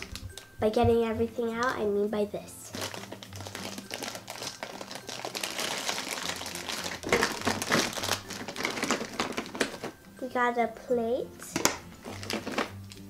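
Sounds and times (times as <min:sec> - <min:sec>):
plastic bag crinkling: 0:00.0 - 0:00.6, 0:02.7 - 0:10.0, 0:11.5 - 0:13.0.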